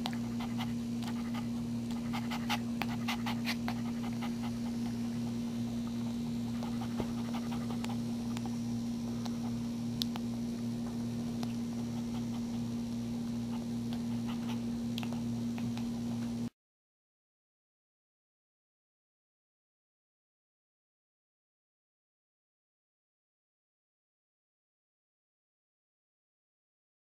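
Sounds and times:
dog panting: 0.0s - 5.2s, 5.9s - 8.6s, 11.5s - 12.8s, 13.5s - 16.3s
steady low hum: 0.0s - 16.5s
puppy suckling clicks: 6.5s - 8.6s, 9.2s - 10.3s, 13.6s - 16.4s.

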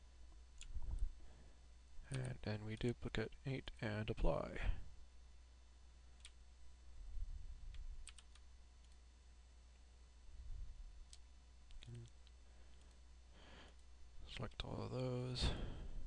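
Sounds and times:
low steady hum: 0.0s - 16.0s
mouse and keyboard clicks: 11.1s - 13.0s.

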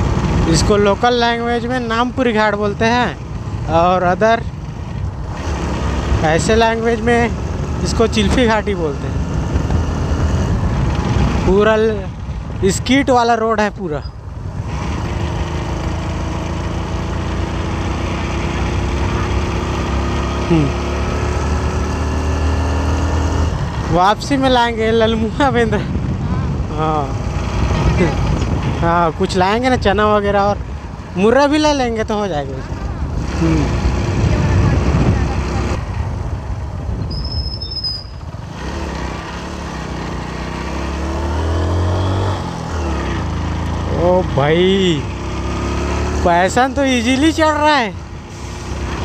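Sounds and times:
motorcycle engine climbing hill: 0.0s - 13.1s, 14.4s - 49.0s
high squeal: 37.0s - 38.3s.

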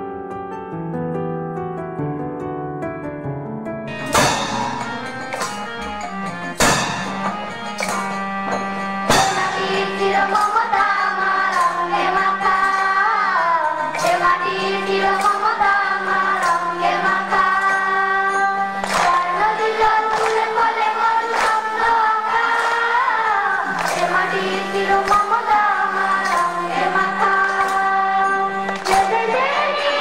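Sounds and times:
drum strikes: 3.9s - 11.8s
school band playing: 3.9s - 17.7s, 18.6s - 30.0s
children singing together: 8.2s - 30.0s.

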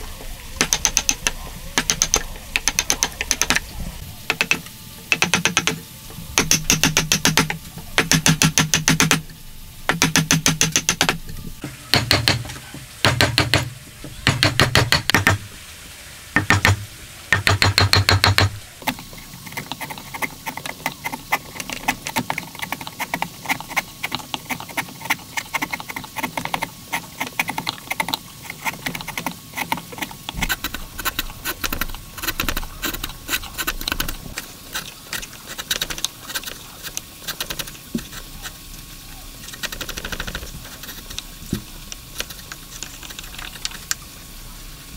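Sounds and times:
chisel paring wood: 0.6s - 3.6s, 4.3s - 5.8s, 6.4s - 9.2s, 9.9s - 11.2s, 11.9s - 15.4s, 16.4s - 27.8s
mallet striking chisel: 0.6s - 3.6s, 4.3s - 5.8s, 6.4s - 9.2s, 9.9s - 11.2s, 11.9s - 15.4s, 16.4s - 18.6s.

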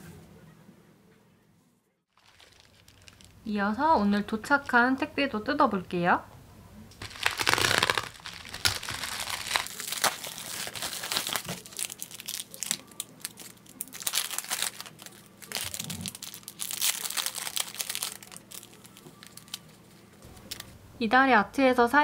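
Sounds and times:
plastic packaging crinkling: 2.2s - 3.5s, 7.0s - 20.7s.

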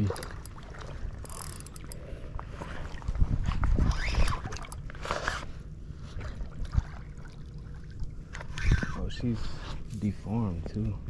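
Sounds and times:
shallow water splashing: 0.0s - 9.4s
wind rumbling on microphone: 2.8s - 4.8s, 8.4s - 11.0s.

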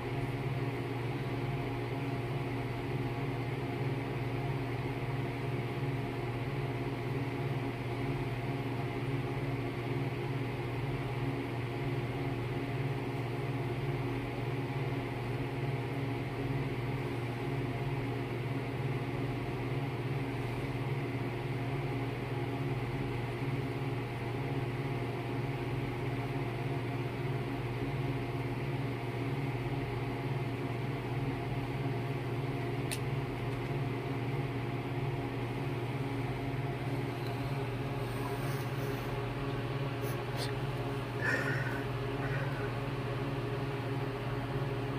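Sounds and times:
low machine hum: 0.0s - 44.9s.

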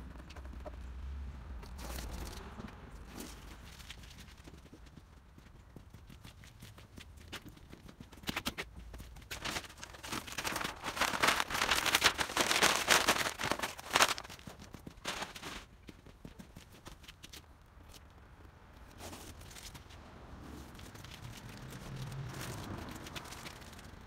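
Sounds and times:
paper rustling and crinkling: 8.3s - 15.7s, 20.6s - 24.0s.

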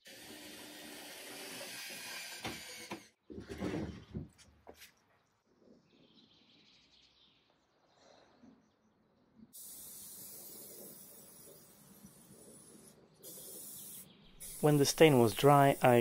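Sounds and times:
aerosol can spraying hiss: 9.6s - 16.0s.

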